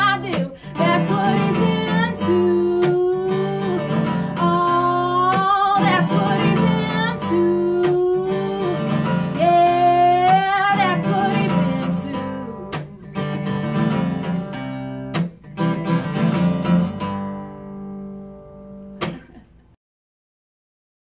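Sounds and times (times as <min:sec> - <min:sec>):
woman singing: 0:00.0 - 0:13.5
strummed acoustic guitar: 0:00.0 - 0:19.6.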